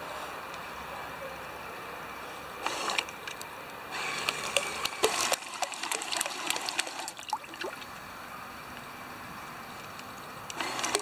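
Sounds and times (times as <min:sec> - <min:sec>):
water splashing and dripping: 0:04.3 - 0:08.1.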